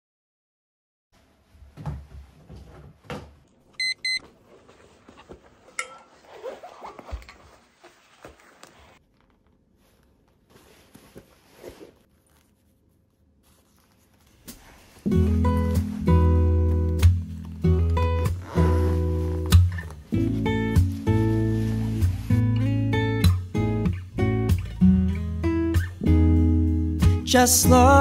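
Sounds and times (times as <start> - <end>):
short electronic beeps: 3.8 - 4.2
rustling of handling: 3.8 - 23.2.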